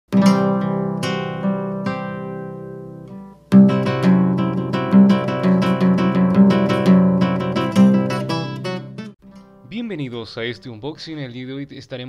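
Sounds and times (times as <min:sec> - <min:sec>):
plucked acoustic guitar: 0:00.1 - 0:09.7.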